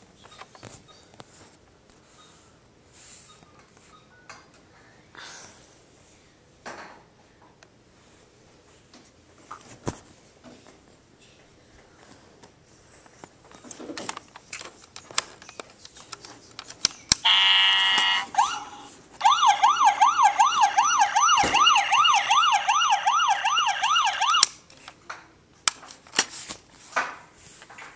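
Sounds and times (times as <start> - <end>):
toy police siren: 17.2 - 24.5
buzzing horn blast: 17.3 - 18.3.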